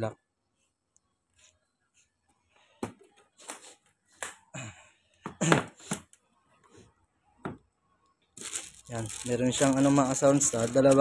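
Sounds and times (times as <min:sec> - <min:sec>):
plastic wrapping rustling and knocks: 0:08.4 - 0:11.0.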